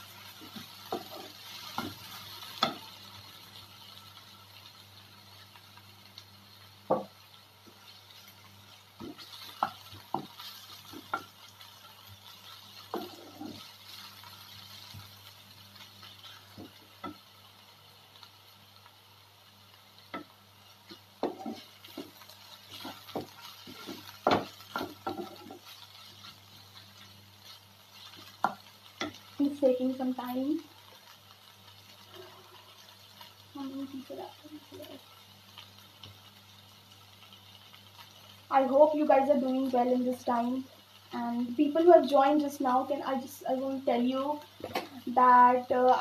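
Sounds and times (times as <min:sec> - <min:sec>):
light sizzle of frying: 0:00.0 - 0:46.0
spatula scraping frying pan: 0:00.3 - 0:02.9, 0:09.0 - 0:15.0, 0:20.9 - 0:29.3.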